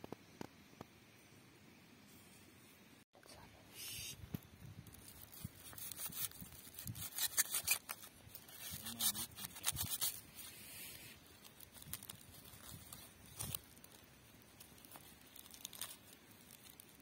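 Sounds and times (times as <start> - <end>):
aluminium foil crinkling: 4.7 - 17.0
pocketknife rasping through foil: 4.9 - 17.0.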